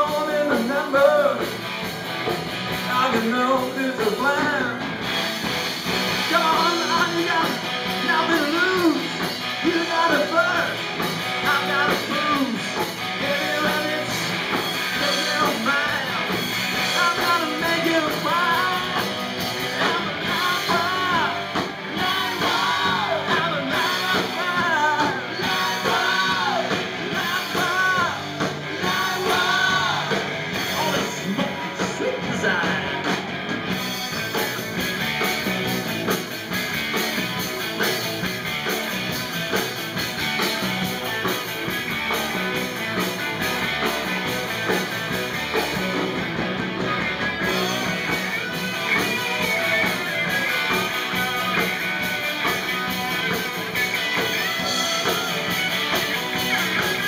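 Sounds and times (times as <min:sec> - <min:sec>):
person singing: 0:00.0 - 0:01.5, 0:02.8 - 0:04.9, 0:06.2 - 0:10.8, 0:11.4 - 0:33.2, 0:47.4 - 0:57.0
amplified electric guitars: 0:00.0 - 0:57.0.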